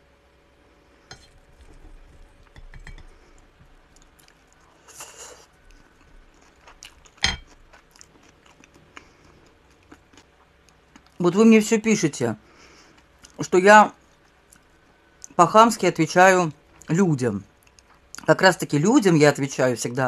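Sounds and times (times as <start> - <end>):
chewing: 1.2 - 11.2, 17.6 - 18.3
fork clicking on plate: 2.4 - 3.1.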